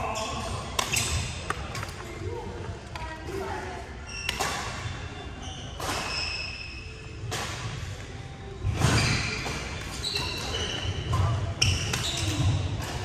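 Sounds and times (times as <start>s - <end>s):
sneakers squeaking on wooden floor: 10.0s - 12.6s.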